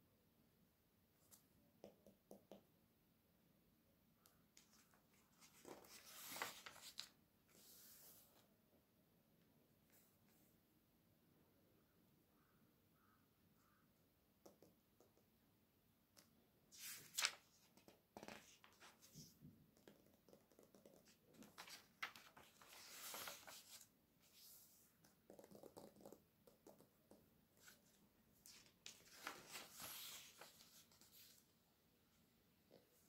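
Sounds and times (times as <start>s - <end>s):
pages turning: 4.6s - 8.4s, 16.7s - 20.0s, 21.0s - 24.8s, 27.6s - 31.4s.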